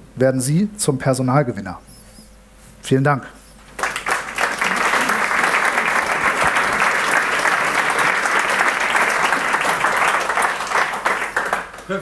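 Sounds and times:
audience applauding: 3.7 - 12.0.

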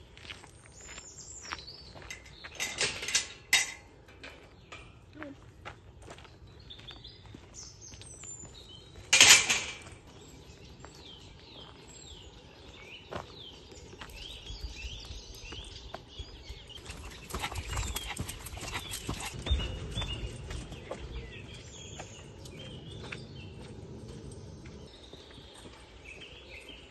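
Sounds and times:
footsteps on gravel: 0.0 - 2.6, 5.2 - 9.1, 9.7 - 26.9
birds chirping and whistling: 6.5 - 26.9.

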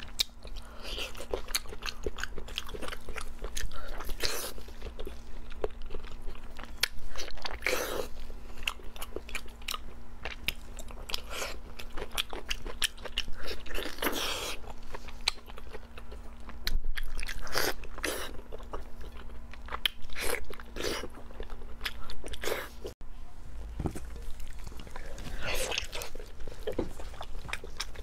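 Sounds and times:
wet chewing and biting: 0.0 - 23.0, 23.9 - 28.0.

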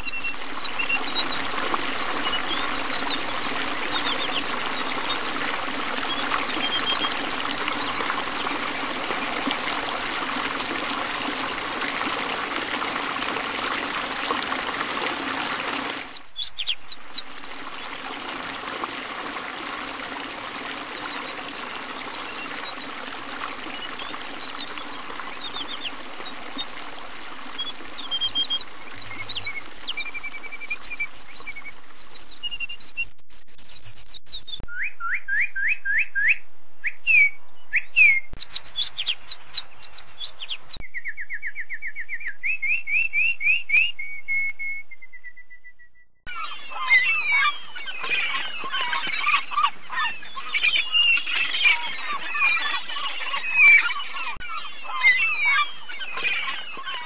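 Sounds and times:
stream water running: 0.0 - 33.1
birds singing: 0.0 - 36.1, 37.1 - 57.0.

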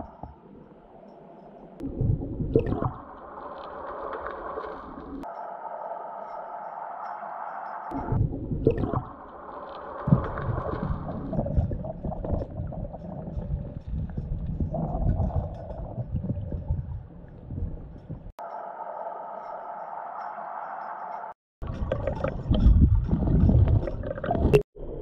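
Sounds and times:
underwater river wash: 0.0 - 25.0.

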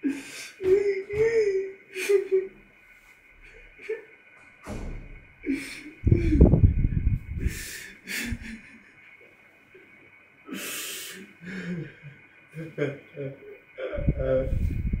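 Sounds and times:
man breathing hard: 0.0 - 0.9, 7.3 - 8.8, 10.5 - 12.1.

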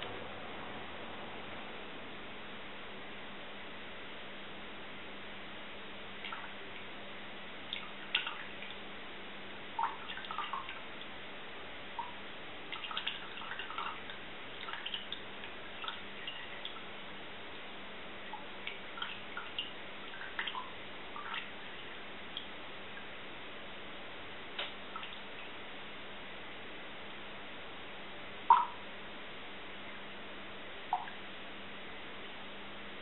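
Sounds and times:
water dripping into a glass: 9.8 - 10.8, 12.0 - 16.9, 18.4 - 21.6, 28.5 - 28.8, 30.9 - 31.2.

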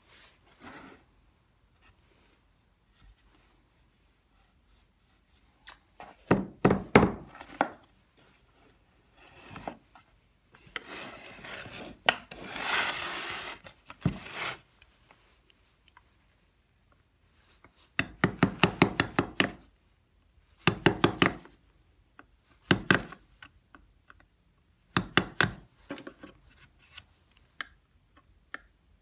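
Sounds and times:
gouge scraping wood: 10.7 - 14.6.

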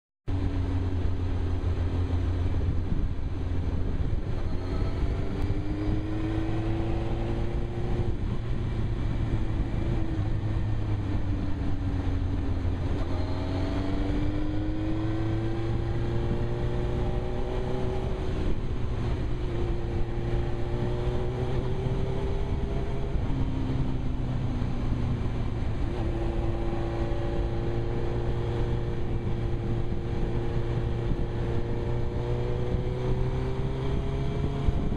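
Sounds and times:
motorcycle engine revving: 0.3 - 34.9
wind rumble on microphone: 0.3 - 34.9.

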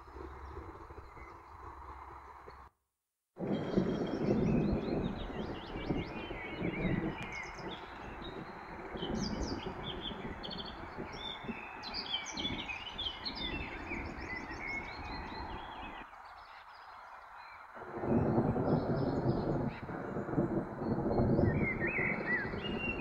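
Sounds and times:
songbirds chirping and singing: 3.5 - 23.0.

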